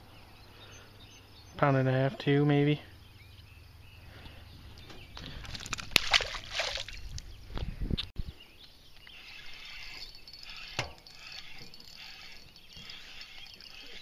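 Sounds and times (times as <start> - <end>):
fish splash in water: 5.6 - 7.0.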